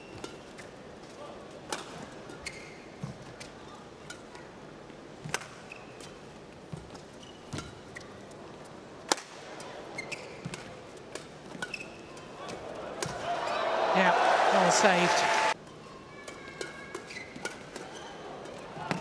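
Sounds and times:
shoes squeaking on court: 2.0s - 3.6s, 5.3s - 8.8s, 9.6s - 12.6s, 16.6s - 19.0s.

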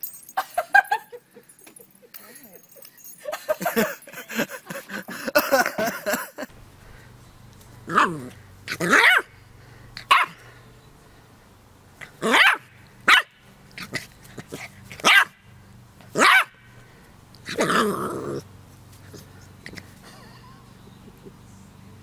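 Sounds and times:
puppy barking: 7.9s - 9.3s, 10.0s - 10.4s, 12.2s - 13.3s, 15.0s - 15.4s, 16.2s - 16.6s.

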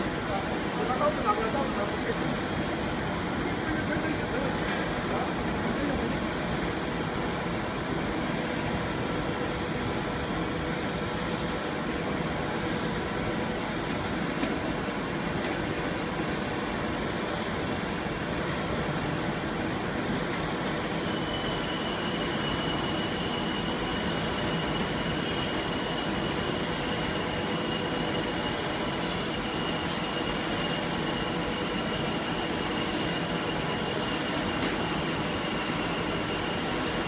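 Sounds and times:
lower machine whine: 0.0s - 37.0s
machine high whine: 0.0s - 37.0s.

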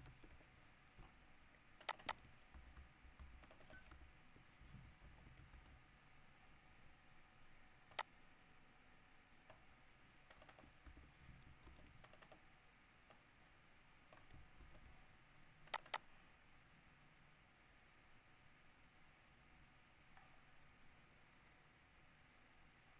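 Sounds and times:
keyboard and mouse clicks: 0.0s - 1.2s, 1.8s - 5.8s, 7.9s - 8.1s, 9.5s - 12.4s, 14.1s - 15.0s, 15.6s - 16.1s.

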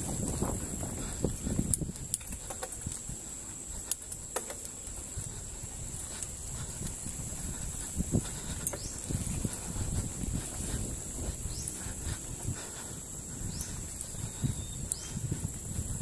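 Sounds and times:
bike rattling over bumps: 0.0s - 16.0s.

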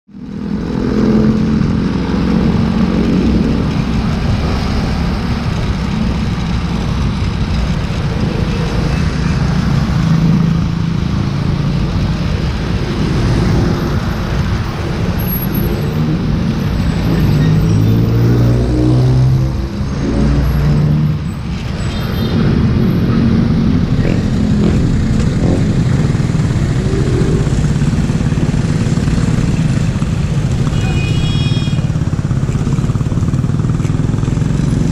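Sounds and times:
road and wind noise: 0.1s - 34.9s
motorcycle engine running: 22.2s - 34.9s.

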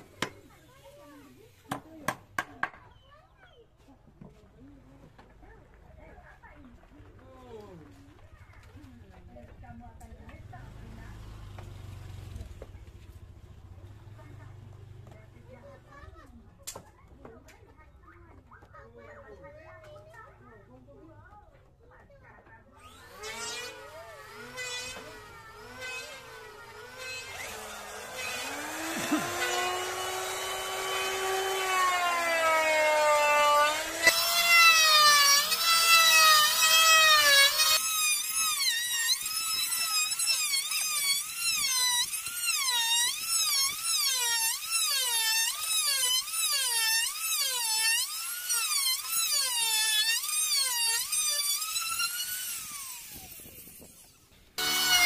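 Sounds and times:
electric router motor whine: 22.8s - 55.0s.

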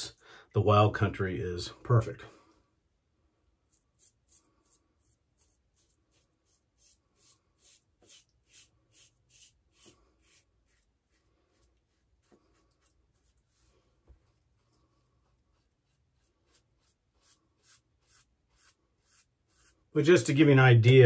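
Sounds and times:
razor scraping stubble: 3.6s - 14.7s, 15.3s - 21.0s.

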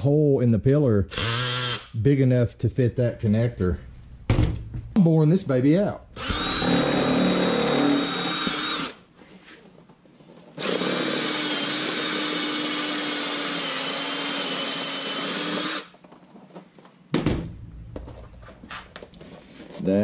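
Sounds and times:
cordless drill boring plastic: 6.2s - 9.0s, 10.6s - 15.9s.

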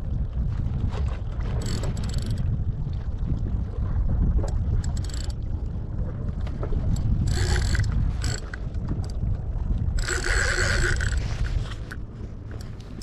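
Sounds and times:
wind on microphone: 0.0s - 13.0s
fishing reel ratcheting: 1.6s - 2.4s, 4.8s - 5.4s, 6.9s - 9.2s, 10.0s - 12.0s.

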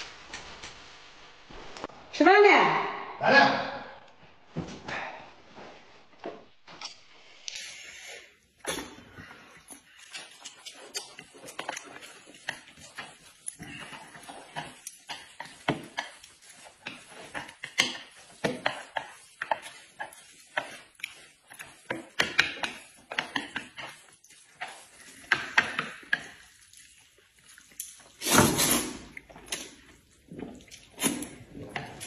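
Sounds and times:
noodle slurping: 7.2s - 32.0s
chewing: 8.6s - 28.2s, 29.0s - 32.0s.

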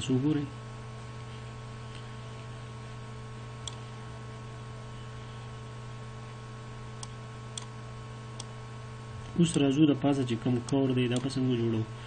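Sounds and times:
low electrical hum: 0.0s - 12.0s
computer mouse clicks: 3.6s - 3.8s.

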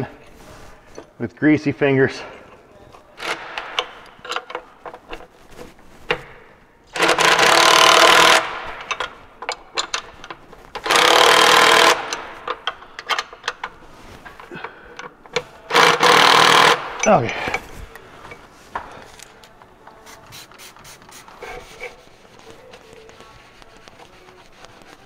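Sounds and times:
handling clicks and knocks: 11.8s - 15.6s.

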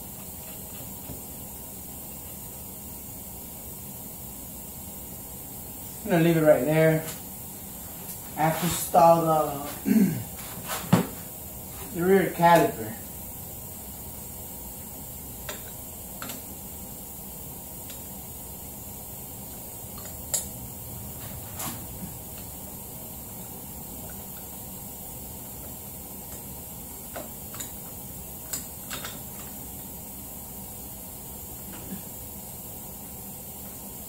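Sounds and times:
steady background hiss: 0.0s - 34.0s.

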